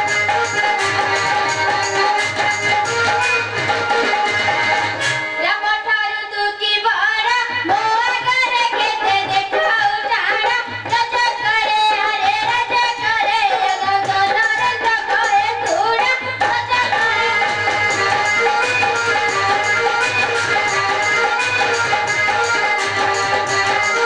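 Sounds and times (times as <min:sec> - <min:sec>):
steady drum beat: 0:00.0 - 0:05.2, 0:17.0 - 0:24.0.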